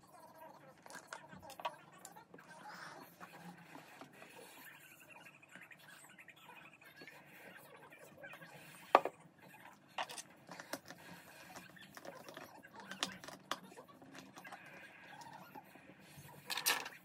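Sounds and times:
objects handled on a table: 8.8 - 9.2.

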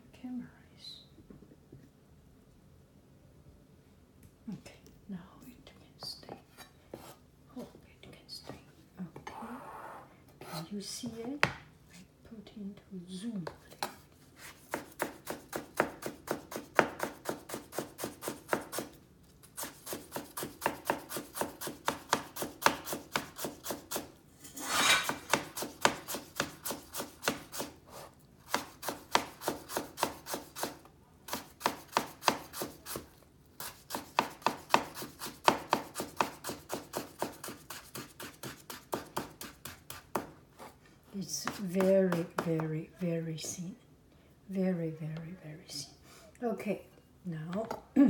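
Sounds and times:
knife chopping on cutting board: 13.4 - 19.0, 19.6 - 27.7, 28.5 - 40.7, 41.4 - 42.7
knife scraping: 23.4 - 30.7.

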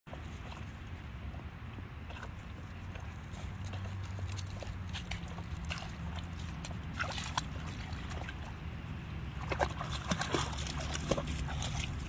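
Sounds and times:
dog paddling in water: 0.1 - 12.0
steady low rumble: 0.1 - 12.0.

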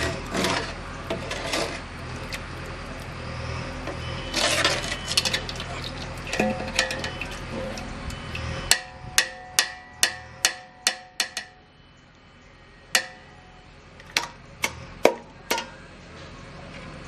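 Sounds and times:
metal ladles clinking on pots: 4.3 - 11.6, 15.0 - 15.8.

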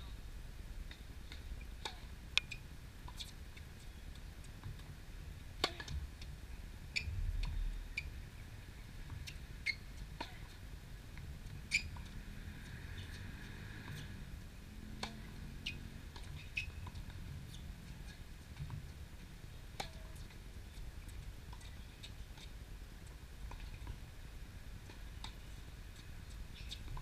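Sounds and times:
low background rumble: 0.0 - 12.3
tennis ball strikes and bounces: 5.6 - 6.0, 9.1 - 10.6, 14.9 - 18.8, 19.8 - 20.3
shoe squeaks: 9.6 - 9.8, 11.7 - 12.0, 15.6 - 16.8.

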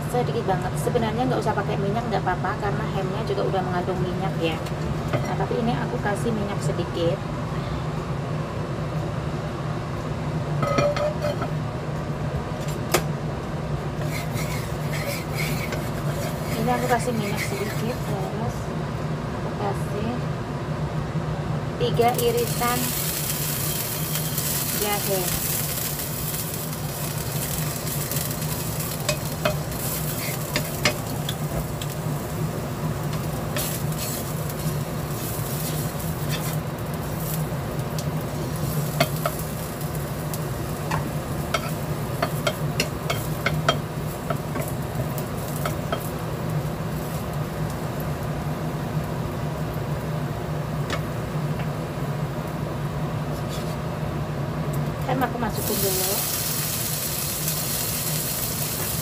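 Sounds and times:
steady low hum: 0.0 - 59.0
ginger sizzling in oil: 13.8 - 18.4, 21.8 - 53.8, 55.1 - 59.0
wooden spatula scraping pan: 14.0 - 18.2.

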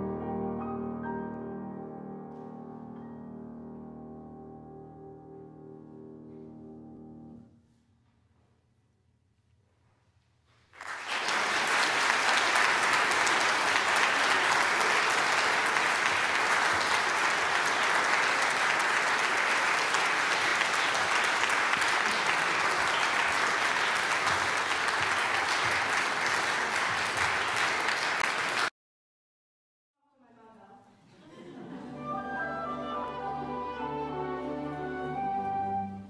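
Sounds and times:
audience applause: 10.8 - 28.7.

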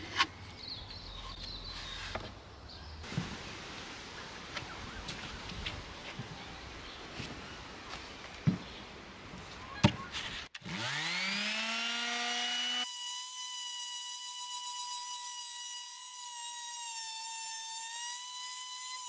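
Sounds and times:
palm sander whining: 10.2 - 19.0.

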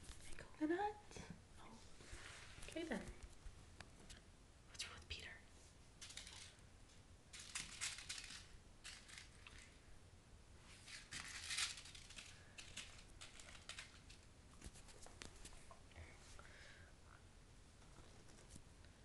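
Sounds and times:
kittens' claws scratching hard floor: 10.7 - 15.8.

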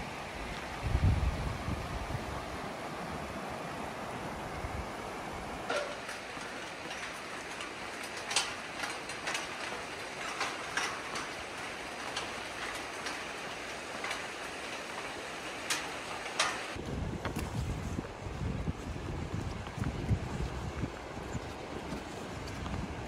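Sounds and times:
river water rushing: 0.0 - 16.8
footsteps clanking on steel mesh: 5.6 - 17.7, 18.4 - 23.0.

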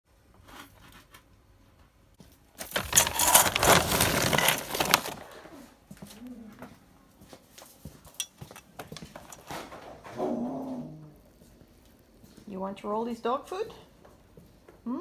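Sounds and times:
plastic bag rustling: 2.4 - 5.7
kibble rattling into metal bowl: 2.6 - 5.2.

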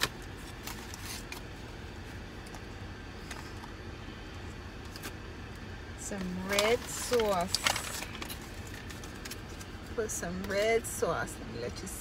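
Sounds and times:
food wrapping rustling: 0.0 - 3.9, 6.2 - 10.0.

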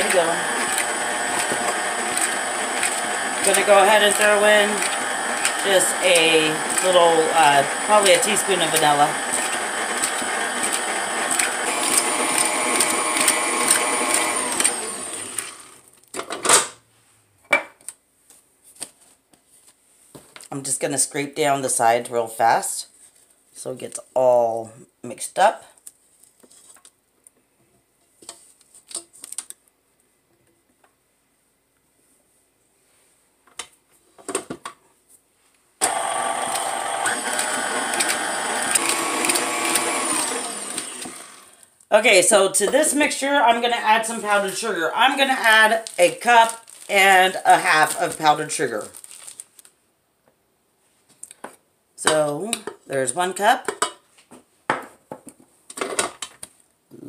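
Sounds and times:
stand mixer whisking: 0.0 - 15.8, 35.8 - 41.5.

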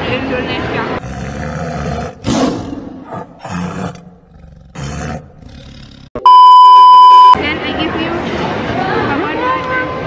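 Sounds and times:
rough roar-like growls: 1.0 - 6.1.

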